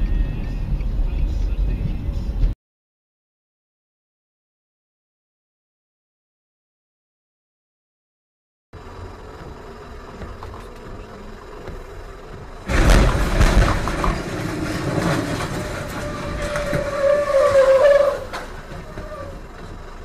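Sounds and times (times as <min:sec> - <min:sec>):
tyre noise on wet road: 0:08.8 - 0:20.0
truck crash: 0:12.6 - 0:20.0
metal scraping and grinding: 0:12.7 - 0:19.6.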